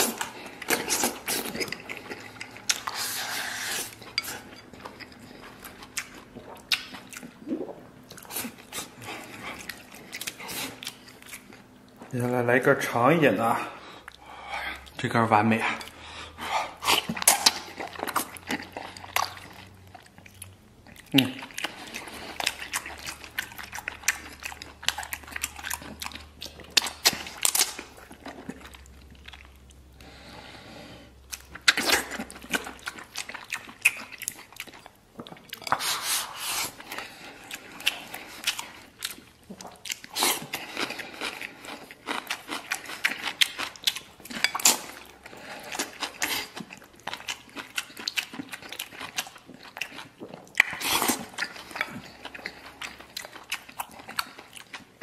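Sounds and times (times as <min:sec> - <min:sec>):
wet chewing and mouth smacking: 0:00.0 - 0:12.1, 0:15.8 - 0:30.1, 0:31.3 - 0:55.0.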